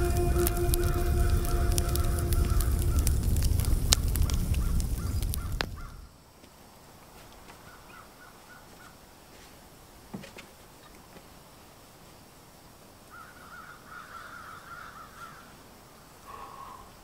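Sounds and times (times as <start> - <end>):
low rumble with crackles: 0.0 - 6.1
bird cawing: 13.1 - 15.5.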